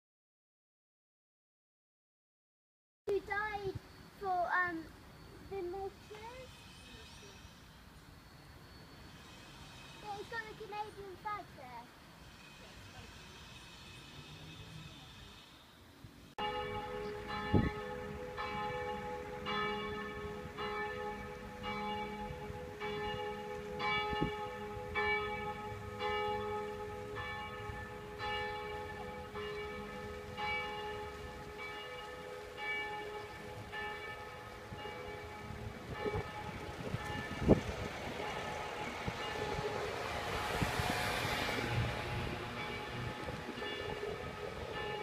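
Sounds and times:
church bell ringing: 16.4 - 45.0.

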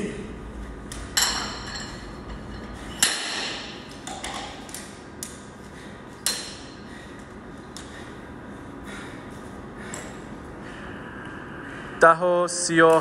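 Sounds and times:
weight plates clinking: 1.1 - 4.8.

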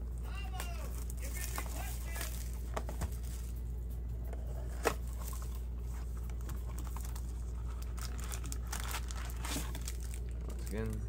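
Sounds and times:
steady low hum: 0.0 - 11.0
card packs rustling and clicking: 0.3 - 11.0.

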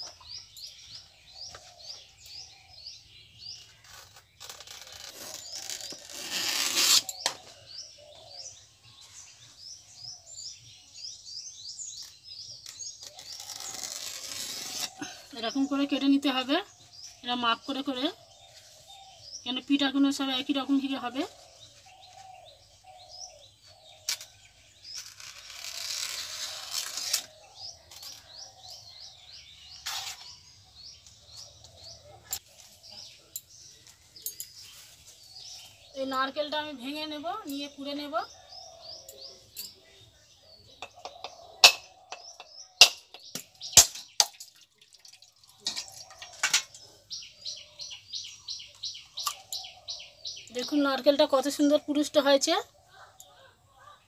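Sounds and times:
small birds chirping: 0.0 - 54.0
leaf being sliced on a blade: 12.7 - 15.1, 25.0 - 27.4.

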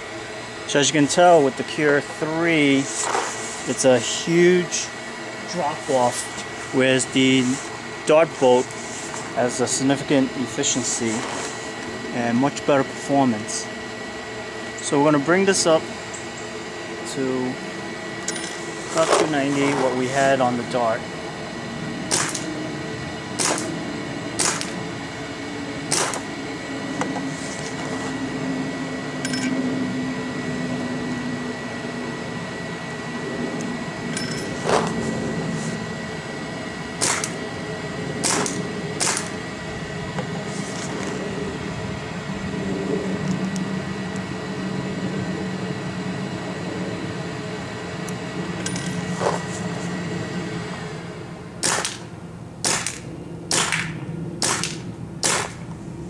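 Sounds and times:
paintball marker shots popping: 22.1 - 22.5, 23.4 - 23.7, 24.4 - 24.8, 25.9 - 26.2, 37.0 - 37.3, 38.2 - 39.3, 51.6 - 52.0, 52.6 - 55.6.

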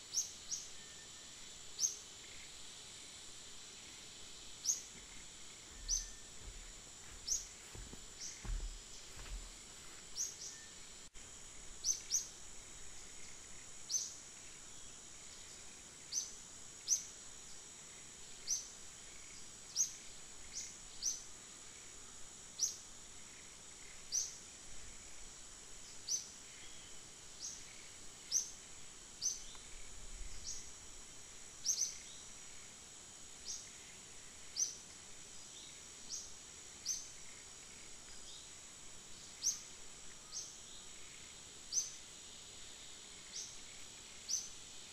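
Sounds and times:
bird chirping: 4.6 - 9.5.

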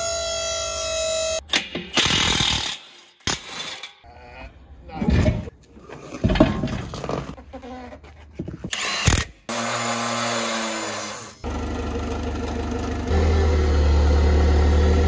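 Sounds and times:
forklift engine humming: 11.4 - 15.0.

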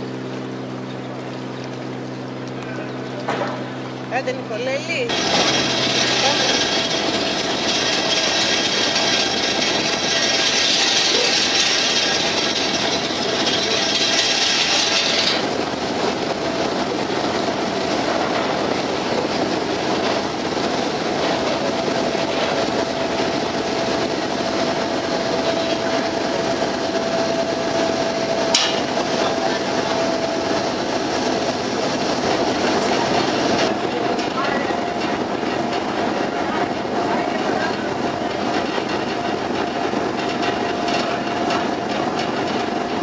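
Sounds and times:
ferry engine running: 0.0 - 43.0
wind and water rush: 4.9 - 43.0.

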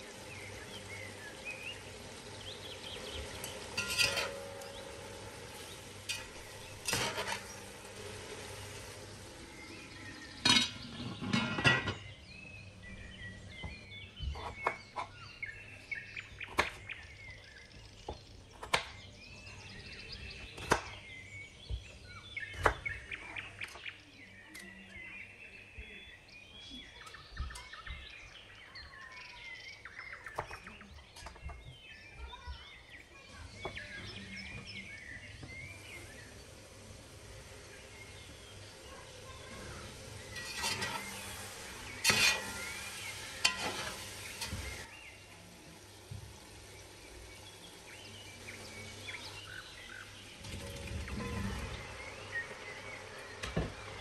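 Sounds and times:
birds chirping: 0.0 - 54.0
lid clattering onto pot: 3.5 - 5.2, 6.0 - 7.5, 10.4 - 12.1.

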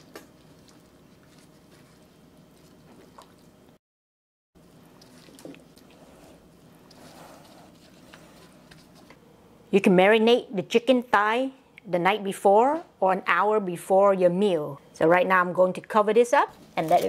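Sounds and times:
wet squelching of kneaded meat: 4.6 - 8.8.

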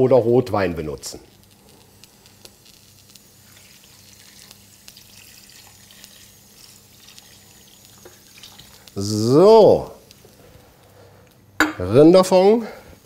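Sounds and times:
liquid pouring into pot: 3.2 - 8.9.

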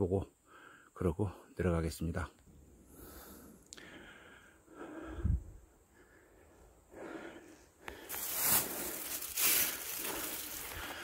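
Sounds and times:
footsteps through dry leaves: 8.0 - 11.0.

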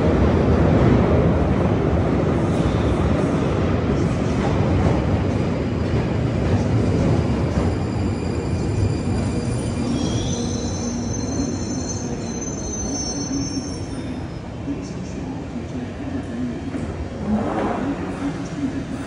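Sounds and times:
underground train rumble: 0.0 - 19.0
high brake squeal: 7.6 - 14.4.

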